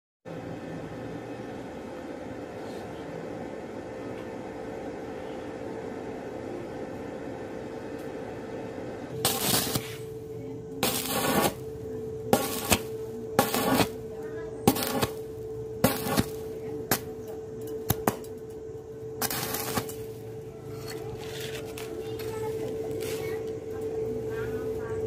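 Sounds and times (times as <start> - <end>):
steady hum: 0.3 - 25.0
welding arc crackling: 9.1 - 25.0.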